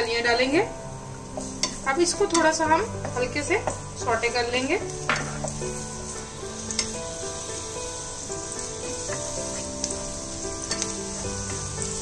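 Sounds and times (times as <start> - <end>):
garlic sizzling in oil: 0.0 - 12.0
wooden spatula tapping pan: 1.3 - 4.4, 5.0 - 5.6.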